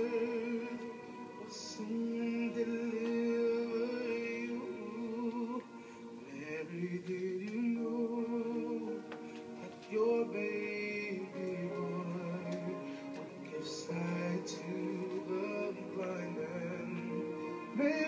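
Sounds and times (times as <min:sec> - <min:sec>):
person singing: 0:00.0 - 0:18.0
slow music with held notes: 0:00.0 - 0:18.0.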